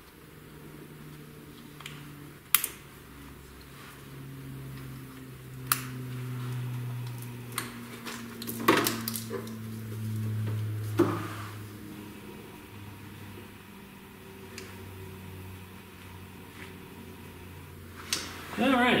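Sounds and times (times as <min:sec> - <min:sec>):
low hum: 0:00.0 - 0:19.0
wiring being handled: 0:04.6 - 0:11.0.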